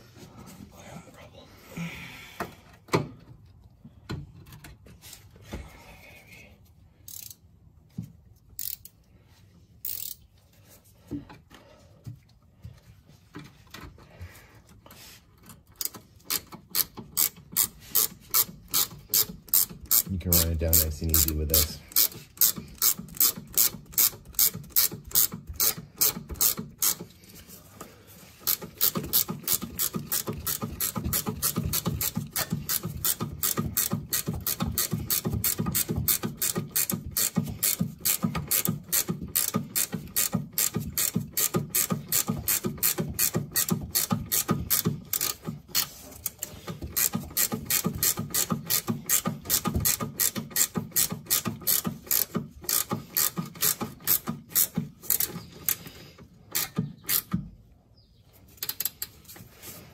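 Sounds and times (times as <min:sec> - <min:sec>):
ratchet wrench clicking: 0:07.0 - 0:07.4, 0:08.6 - 0:09.0, 0:09.8 - 0:10.2, 0:15.7 - 0:27.1, 0:28.4 - 0:55.9, 0:56.5 - 0:57.4.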